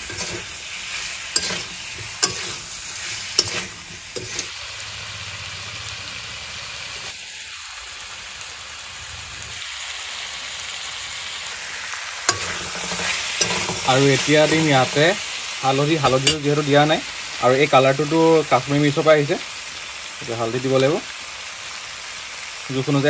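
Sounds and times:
meat sizzling in oil: 0.0s - 23.0s
metal spatula knocking pan: 1.4s - 2.7s, 3.4s - 4.5s, 12.3s - 14.1s, 16.1s - 16.5s.

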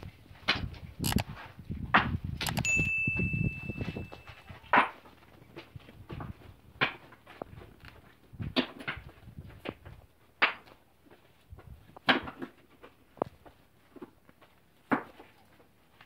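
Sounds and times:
scuffs on gravel: 3.6s - 16.0s.

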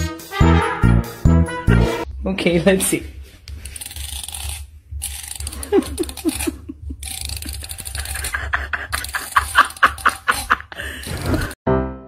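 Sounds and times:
flea comb scratching through fur: 3.4s - 11.6s.

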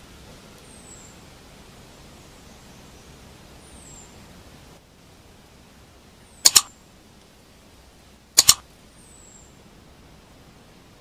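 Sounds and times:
background hiss: 0.0s - 11.0s
computer mouse double click: 6.5s - 6.7s, 8.4s - 8.6s.

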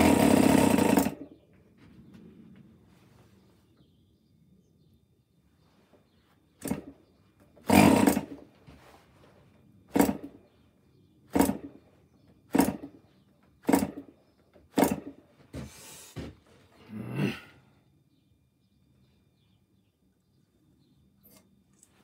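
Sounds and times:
model engine firing and sputtering: 0.0s - 1.3s, 7.6s - 8.4s, 9.9s - 10.3s, 11.3s - 11.8s, 12.5s - 13.0s, 13.6s - 14.1s, 14.8s - 15.1s.

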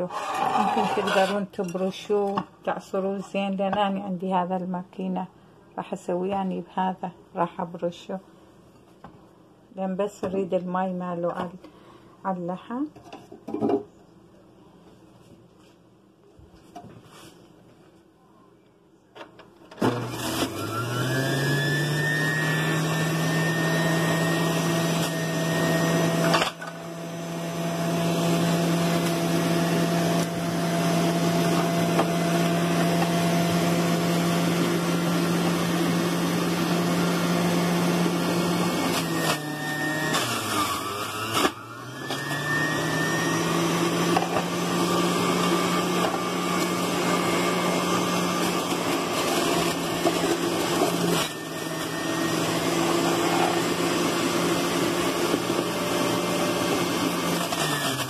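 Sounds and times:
electric mincer motor hum: 19.8s - 58.0s.

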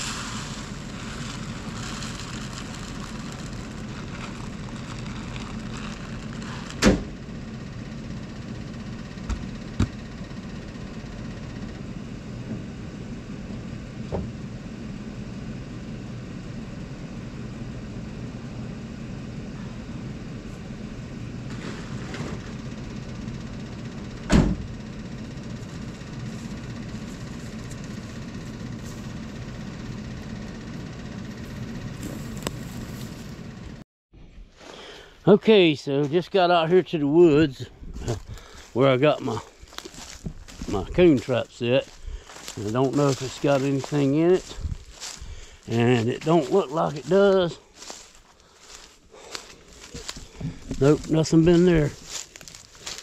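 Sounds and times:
feed pouring into a barrel: 0.0s - 6.8s
truck engine idling: 0.0s - 33.8s, 34.9s - 53.0s.

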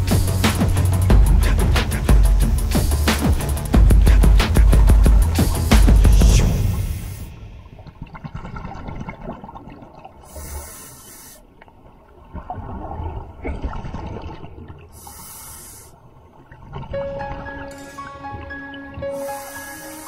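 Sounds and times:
music: 0.0s - 7.7s, 16.9s - 20.0s
diver breathing through regulator: 1.3s - 7.3s, 10.2s - 11.5s, 14.9s - 16.0s, 19.0s - 20.0s.

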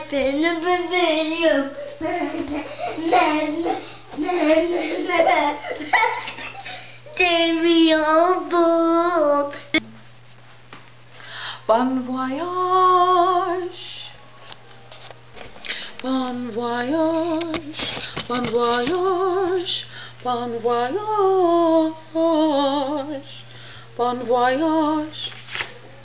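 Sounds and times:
woman singing with vibrato: 0.0s - 2.3s, 7.0s - 9.8s, 11.5s - 14.4s, 15.8s - 25.3s.

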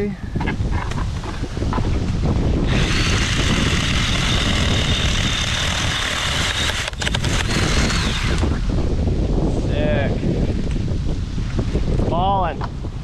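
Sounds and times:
pruning saw whining: 2.6s - 8.7s.

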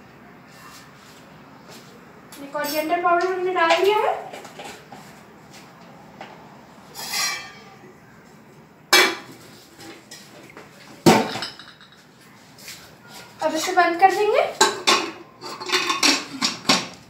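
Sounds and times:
metal kitchenware clinking: 2.4s - 4.4s, 6.9s - 7.8s, 11.1s - 12.0s, 13.4s - 17.0s.

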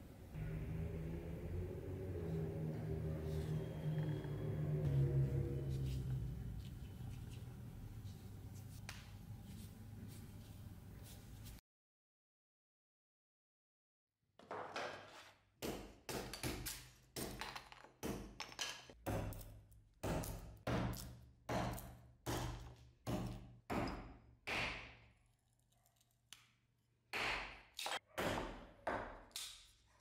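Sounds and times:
knife chopping wood on block: 19.0s - 25.0s.

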